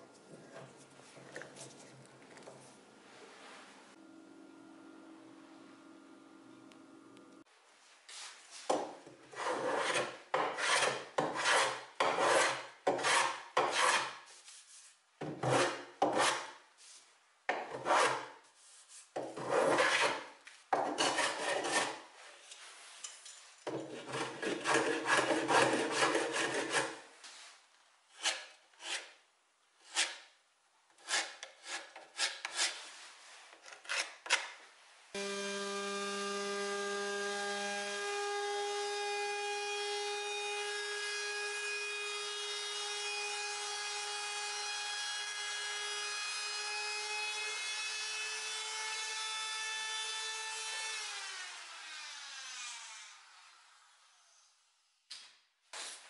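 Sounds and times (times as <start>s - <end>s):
hand plane scraping wood: 8.8s - 14.2s, 15.4s - 16.5s, 17.8s - 18.3s, 19.2s - 22.0s, 23.7s - 27.0s, 31.0s - 32.8s, 33.6s - 34.4s
router motor whine: 35.2s - 38.7s.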